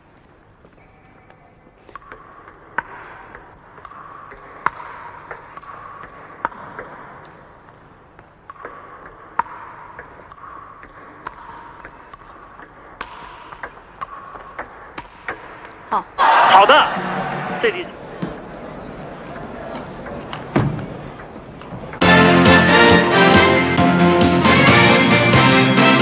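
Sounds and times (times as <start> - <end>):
table tennis ball clicking: 1.3 - 16.0.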